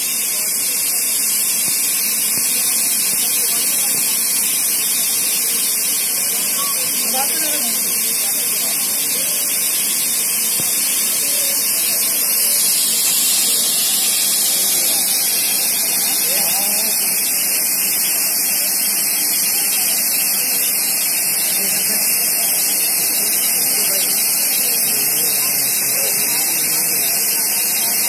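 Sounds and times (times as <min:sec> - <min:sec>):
compressed air hissing: 0:00.0 - 0:28.0
faint voices: 0:00.0 - 0:28.0.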